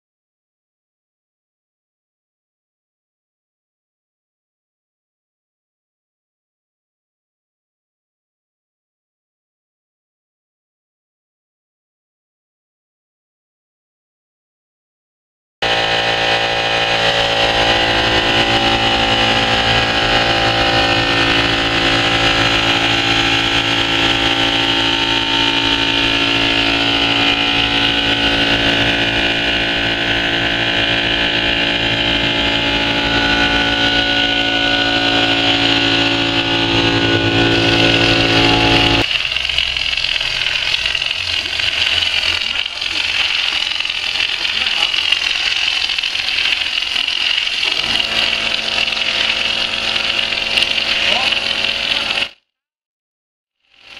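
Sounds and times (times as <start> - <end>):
rough hissy machine sound: 15.6 - 52.3
spraying machine drone: 15.6 - 52.4.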